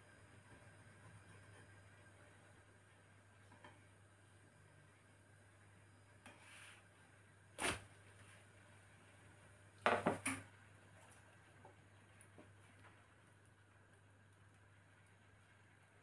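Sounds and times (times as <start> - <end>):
faint steady hum: 0.0 - 16.0
frying pan knock: 9.8 - 10.4.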